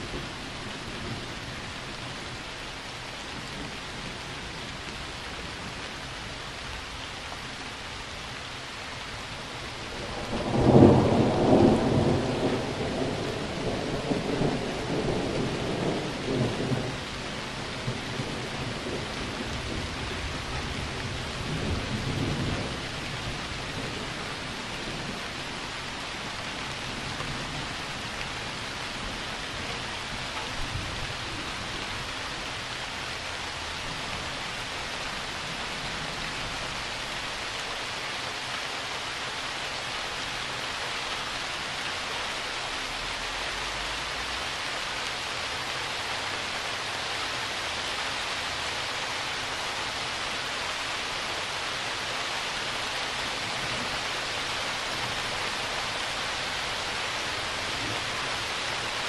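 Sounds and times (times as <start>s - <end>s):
steady rain hissing: 0.0s - 59.0s
thunder rumbling: 9.9s - 25.4s.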